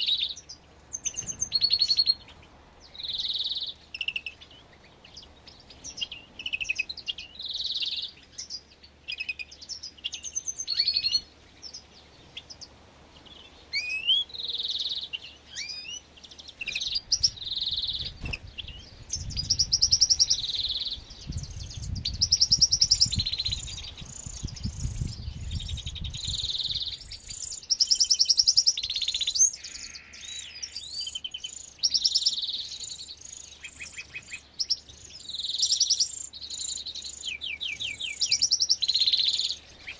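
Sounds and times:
finches chirping and singing: 0.0 - 39.9.

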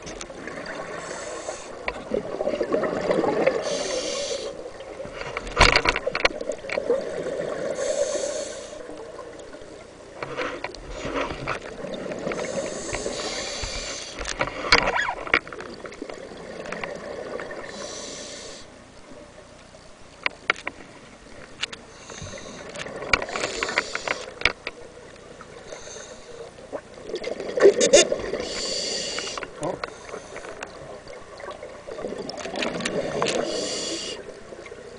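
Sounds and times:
exhaled bubbles hissing: 0.0 - 5.0, 6.4 - 9.8, 10.4 - 15.2, 15.8 - 18.8, 25.4 - 34.9
water noise: 0.0 - 34.9.

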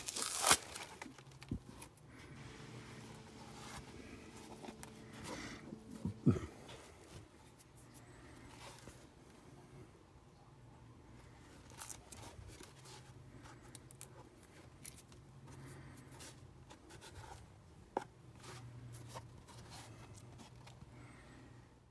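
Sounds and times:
plastic rustling and crinkling: 0.0 - 2.4, 11.4 - 15.2
low steady hum: 0.0 - 21.9.

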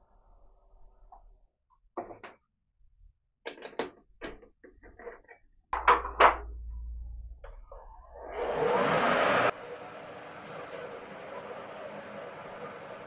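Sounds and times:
low steady hum: 5.8 - 13.0.

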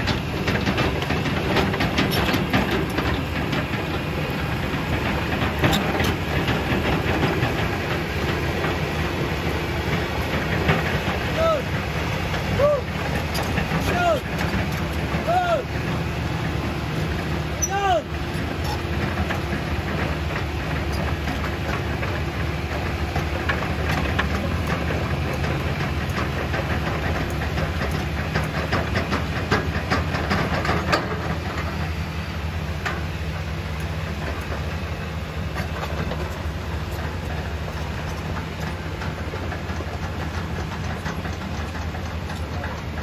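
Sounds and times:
excavator diesel engine running: 0.0 - 43.0
steel track links clanking: 0.0 - 43.0.

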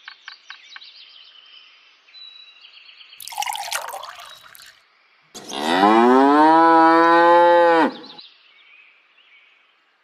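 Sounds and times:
water trickling into bowl: 3.2 - 4.8
cow mooing: 5.4 - 8.2.

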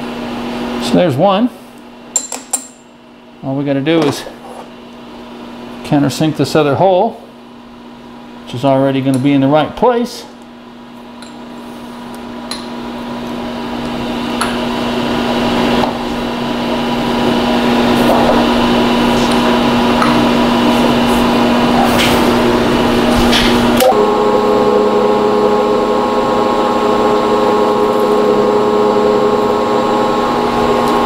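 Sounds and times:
milling machine spindle humming: 10.8 - 31.0.

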